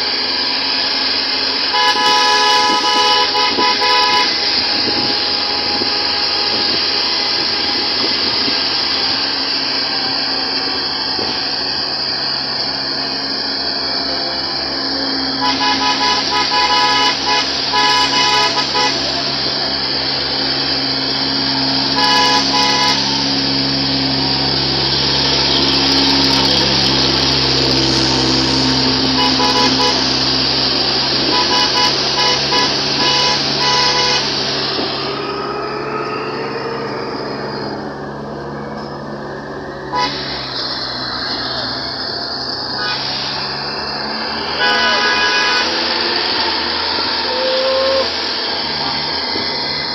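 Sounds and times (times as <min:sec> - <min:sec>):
vehicle engine on rough road: 0:00.0 - 0:49.9
vehicle horn short toots: 0:01.7 - 0:08.4, 0:15.3 - 0:19.3, 0:21.8 - 0:23.6, 0:29.0 - 0:30.3, 0:31.2 - 0:34.4, 0:39.9 - 0:40.4, 0:42.7 - 0:43.6, 0:44.4 - 0:46.0.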